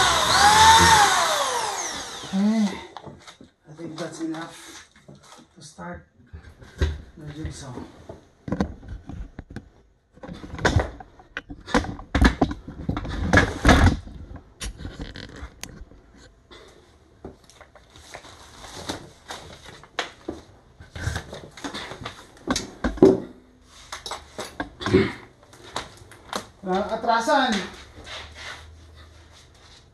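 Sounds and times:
rustling and scraping: 6.2s - 16.4s, 17.3s - 22.9s, 25.5s - 29.9s.

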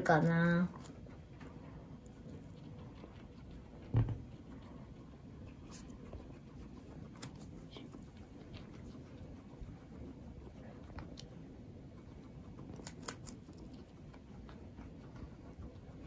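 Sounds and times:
guinea pig chewing: 0.0s - 16.0s
dull thump: 3.9s - 4.3s.

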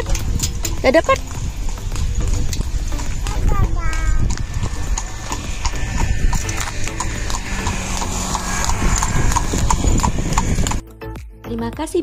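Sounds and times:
rhythmic clopping knocks: 0.0s - 10.8s.

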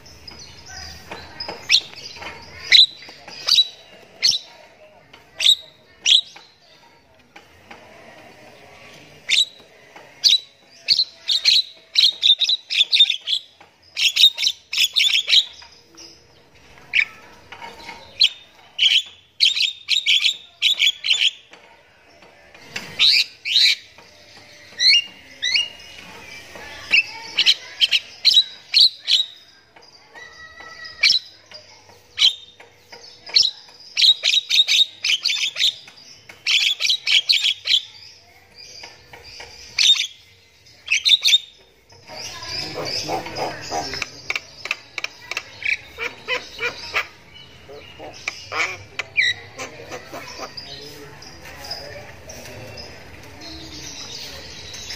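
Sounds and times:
myna chattering song: 22.1s - 54.9s.

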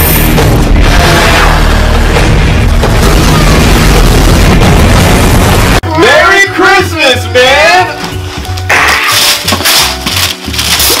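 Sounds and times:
wrapping paper tearing: 8.4s - 11.0s.

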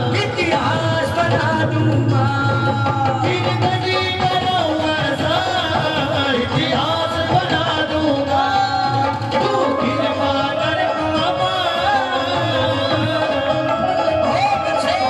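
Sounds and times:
devotional melody: 0.0s - 15.0s
hand drum percussion: 0.0s - 15.0s.

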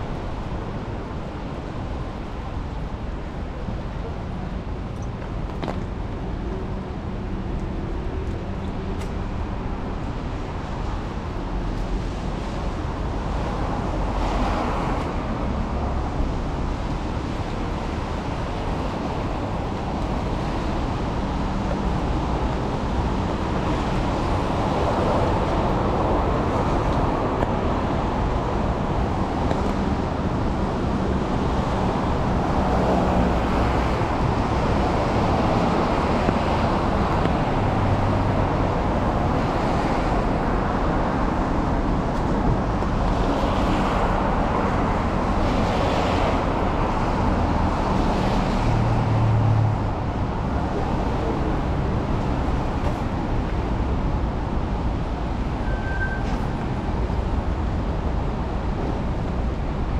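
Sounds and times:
cars driving on wet street: 0.0s - 59.9s.

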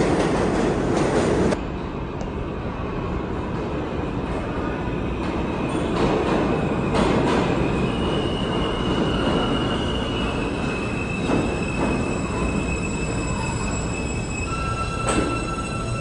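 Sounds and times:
train wheels rumbling on rail: 0.0s - 16.0s
high wheel squeal: 7.6s - 16.0s.

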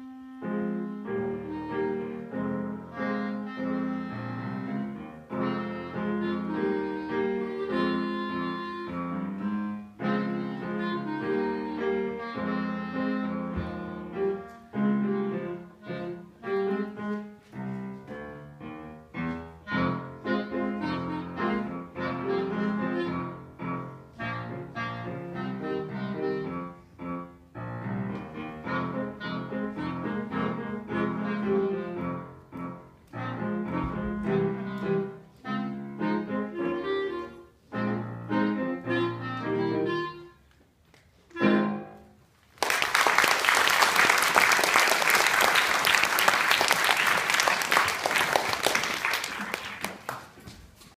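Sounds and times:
clarinet and piano playing: 0.0s - 42.2s
audience applause: 42.6s - 50.4s.

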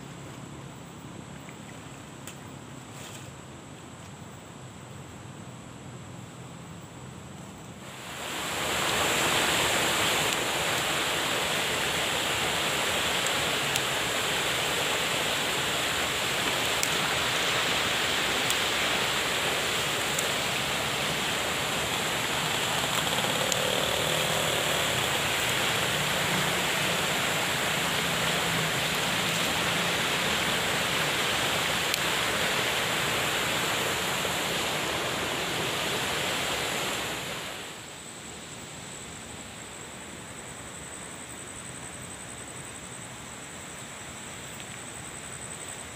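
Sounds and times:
river rushing over rocks: 7.8s - 37.9s.

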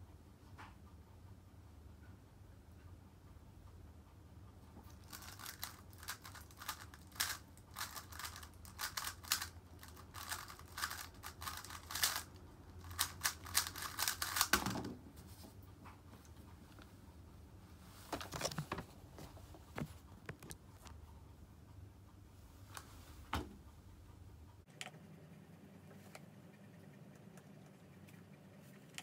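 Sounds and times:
speed cube plastic clicks: 5.0s - 14.6s.

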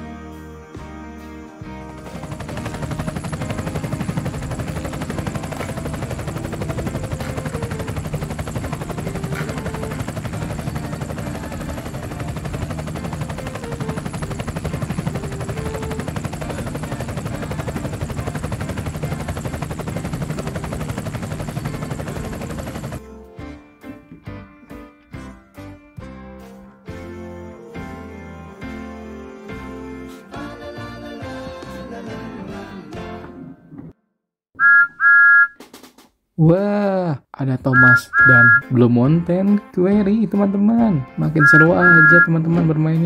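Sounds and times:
toy helicopter rotor chopping: 2.1s - 23.0s, 37.8s - 38.6s, 41.4s - 42.3s.

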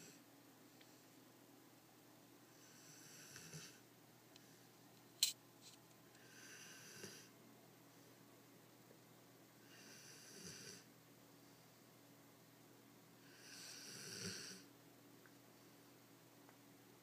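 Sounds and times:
dog snoring: 2.5s - 3.8s, 6.2s - 7.3s, 9.6s - 10.9s, 13.2s - 14.6s.

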